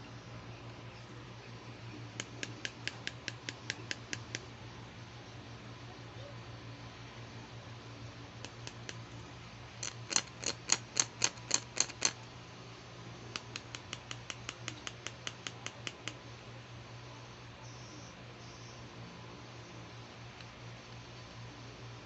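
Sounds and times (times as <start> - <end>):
plastic toy clipper clicking: 9.8 - 12.2.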